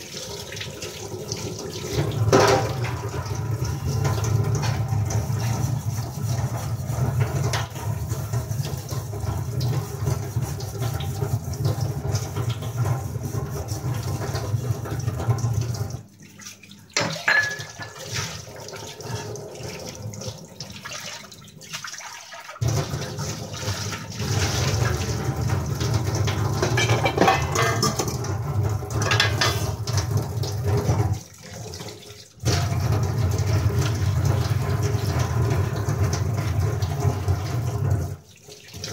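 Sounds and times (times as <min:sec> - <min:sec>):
tap water running into sink: 0:00.0 - 0:38.9
scrubbing: 0:04.1 - 0:14.9
utensils clinking: 0:17.0 - 0:18.0, 0:26.6 - 0:28.2, 0:29.0 - 0:29.8.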